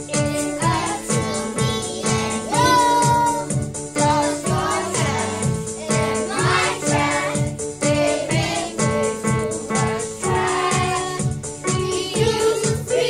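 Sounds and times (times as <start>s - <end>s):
backing music with steady beat: 0.0s - 13.0s
choir singing: 4.0s - 5.4s, 6.0s - 11.2s, 11.8s - 13.0s.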